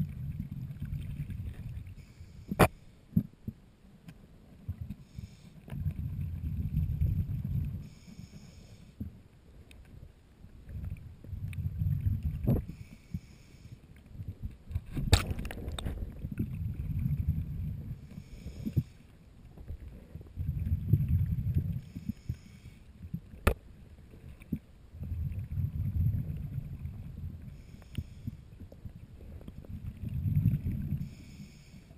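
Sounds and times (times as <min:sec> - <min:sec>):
exhaled bubbles rumbling: 0:00.0 - 0:03.6, 0:05.7 - 0:08.0, 0:10.6 - 0:12.8, 0:14.2 - 0:18.9, 0:19.5 - 0:22.3, 0:23.0 - 0:31.4
regulator inhale hiss: 0:02.0 - 0:03.0, 0:05.0 - 0:05.7, 0:07.8 - 0:09.0, 0:12.6 - 0:13.9, 0:18.0 - 0:19.1, 0:21.8 - 0:23.0, 0:27.5 - 0:28.5, 0:30.9 - 0:31.9.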